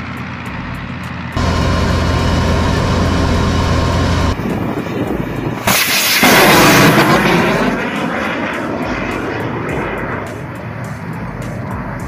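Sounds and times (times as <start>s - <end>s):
vehicle engine humming: 0.0s - 5.7s, 8.9s - 12.0s
missile launching roar: 1.4s - 4.4s, 5.6s - 8.0s.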